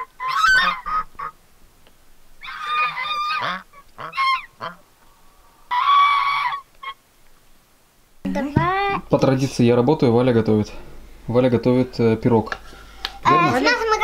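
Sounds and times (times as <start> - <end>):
geese honking: 0.0 - 1.4, 2.4 - 5.0, 5.6 - 7.0.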